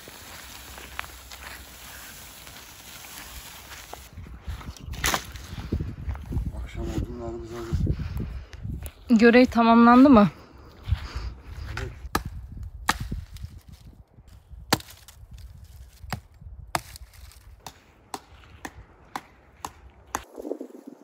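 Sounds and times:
firewood chopping cracks: 4.9 - 5.4, 12.1 - 13.8, 14.6 - 20.3.

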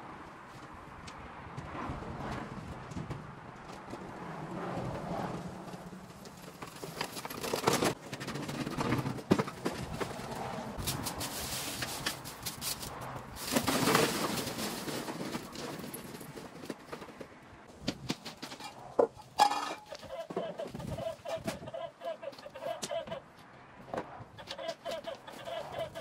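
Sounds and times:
lawn mower clattering on paving: 5.6 - 10.4, 11.1 - 21.7.

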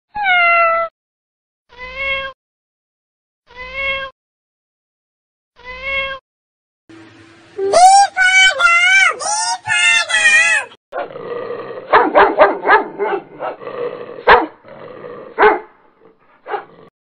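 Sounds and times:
dog barking: 11.9 - 13.6, 14.2 - 14.6, 15.4 - 15.7, 16.4 - 16.8.

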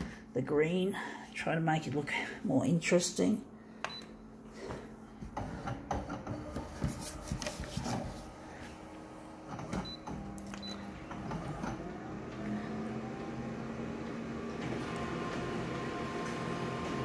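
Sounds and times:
photocopier motor hum: 4.7 - 17.0.

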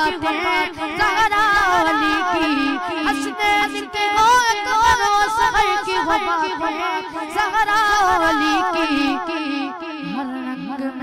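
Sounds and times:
held vocal drone: 0.0 - 11.0
man singing ornamented melody: 0.0 - 11.0.

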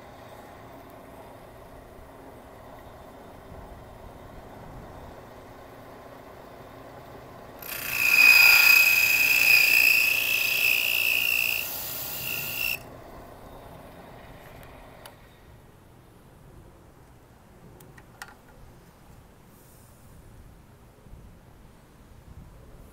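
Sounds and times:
drill press cutter shrieking: 7.6 - 12.8.

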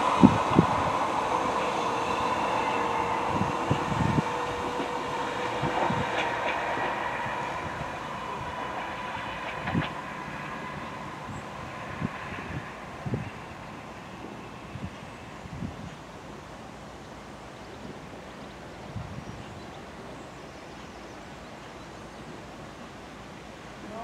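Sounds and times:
electric train motors whining: 0.0 - 13.2
wheels knocking on track: 3.4 - 11.4.

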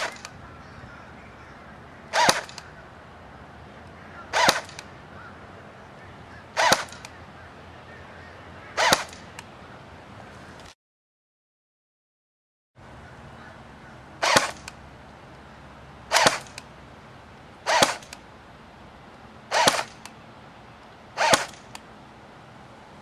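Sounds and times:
airsoft rifle shots: 0.0 - 0.4, 2.1 - 2.8, 4.3 - 4.9, 6.5 - 7.2, 8.7 - 9.5, 14.2 - 14.8, 16.1 - 16.7, 17.6 - 18.2, 19.5 - 20.2, 21.2 - 21.8.

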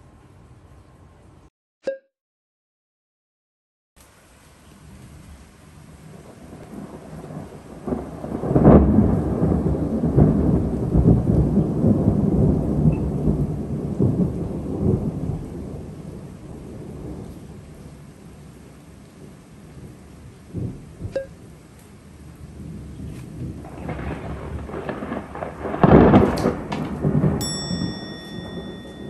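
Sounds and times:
steady rain: 4.0 - 29.0
thunder rolling: 6.0 - 21.2, 22.4 - 29.0.

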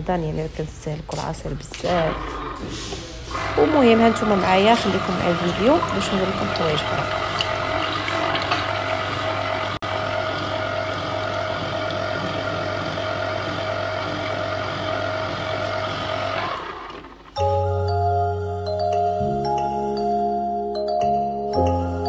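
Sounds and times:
electric juicer motor humming: 1.7 - 17.4.

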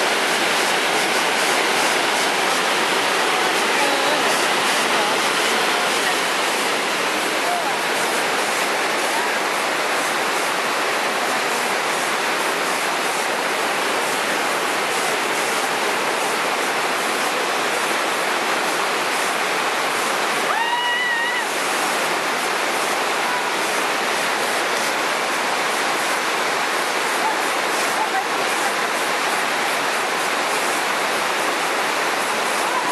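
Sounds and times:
waterfall rushing over rock: 0.0 - 32.9.

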